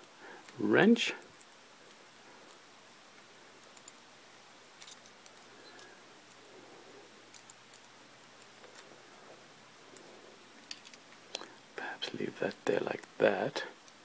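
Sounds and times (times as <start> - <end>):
low background hiss: 0.0 - 14.0
small metal parts clicking: 10.6 - 11.4.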